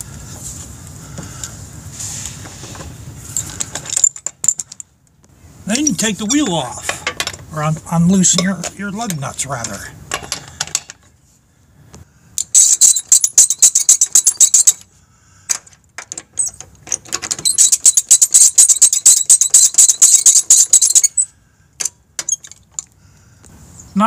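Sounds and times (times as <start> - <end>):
lug wrench clicking and rattling: 12.4 - 14.9, 15.5 - 22.9.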